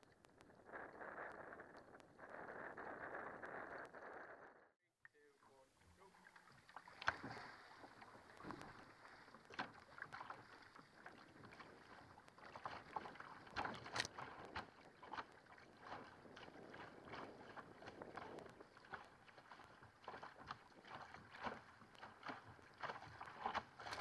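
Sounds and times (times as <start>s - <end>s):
paddle splashes: 5.2s - 24.0s
water slapping against hull: 6.0s - 24.0s.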